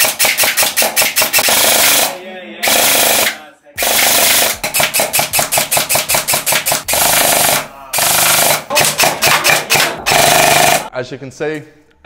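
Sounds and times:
gel blaster firing rapid bursts: 0.0 - 10.9.

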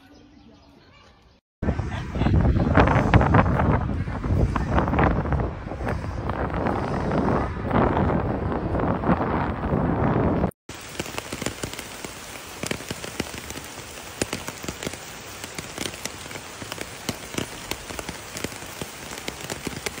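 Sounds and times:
low wind-like noise: 1.6 - 10.5
sleet or rain pattering: 2.8 - 20.0.

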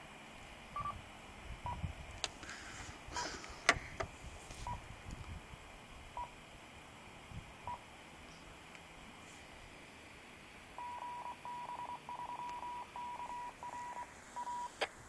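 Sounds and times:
short high beeps: 10.8 - 14.7.

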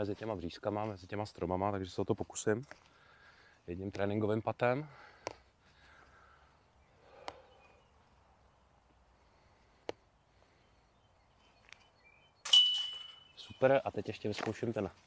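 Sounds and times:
disc hitting metal chains: 12.5 - 13.7.

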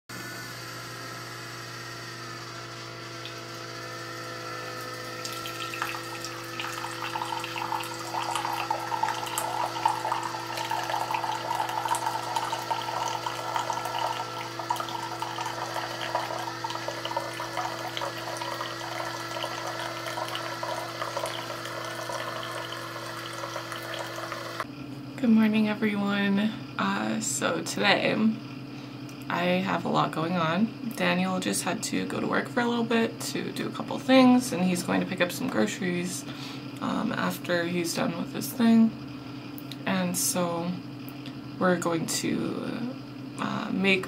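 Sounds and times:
coffee maker pump humming: 0.1 - 28.3, 29.2 - 44.0
coffee pouring into mug: 4.7 - 24.7.

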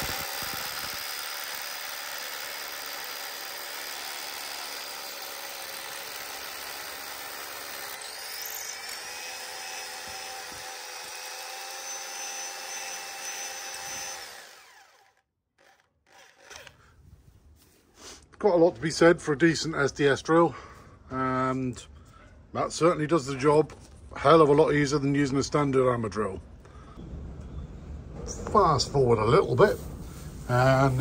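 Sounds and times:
drill boring into wall: 0.0 - 16.8.

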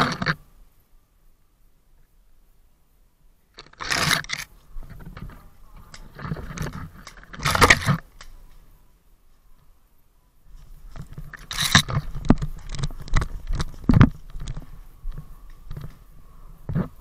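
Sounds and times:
small clicks: 3.5 - 8.6, 10.9 - 16.1
scraping and crunching: 3.6 - 8.6, 10.5 - 17.0.

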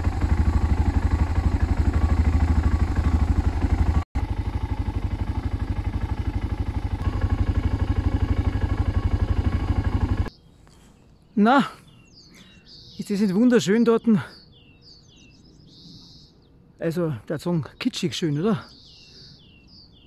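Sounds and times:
motorcycle engine running: 0.0 - 10.3.

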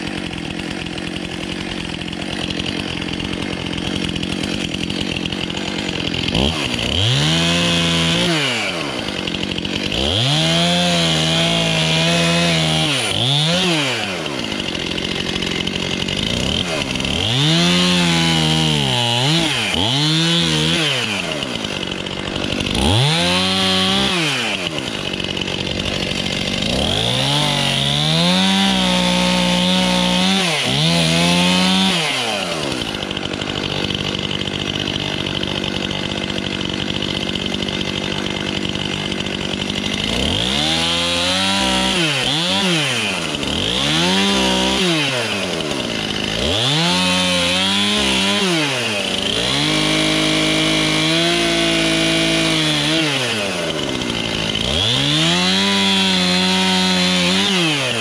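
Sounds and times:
chainsaw engine revving: 0.0 - 58.0
chainsaw sawing through wood: 0.0 - 58.0.

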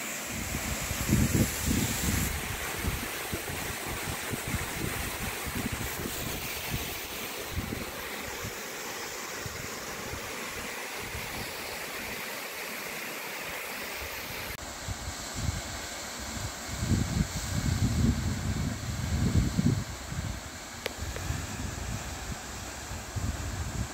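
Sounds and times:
wind buffeting microphone: 0.4 - 7.9, 16.7 - 20.4.

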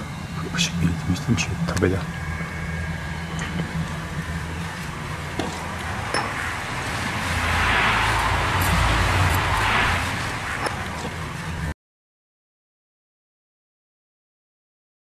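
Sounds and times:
steady low hum: 0.0 - 11.8.

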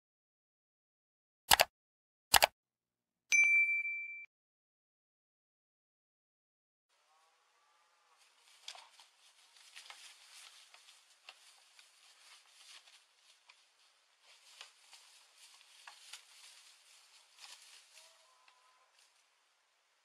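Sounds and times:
dry leaves rustling and crackling: 8.2 - 19.3.

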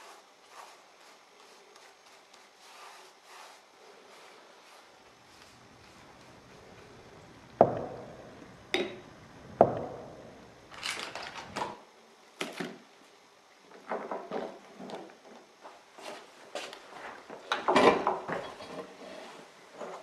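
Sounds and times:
paper rustling and rubbing: 0.0 - 6.7
knocks on wooden table: 7.6 - 8.0.

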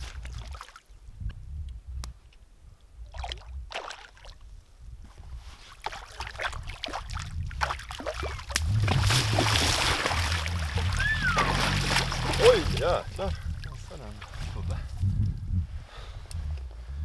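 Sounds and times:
wind rumble on microphone: 0.0 - 3.8, 4.4 - 17.0
water splashing from wading: 3.1 - 4.4, 5.8 - 14.5.

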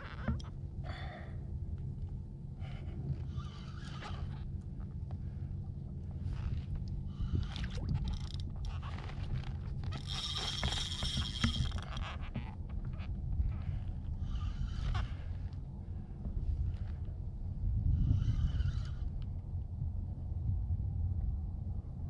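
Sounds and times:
fishing reel whirring: 7.1 - 12.5, 18.0 - 19.2
fishing reel clicks and rubbing: 7.4 - 8.8, 9.9 - 12.2.

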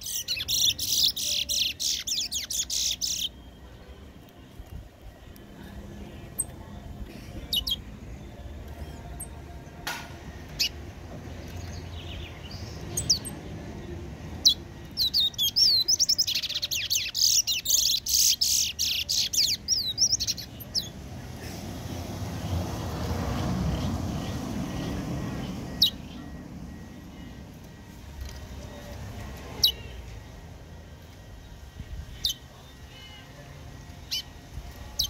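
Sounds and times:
songbird chirping: 0.0 - 21.4, 22.0 - 35.0.

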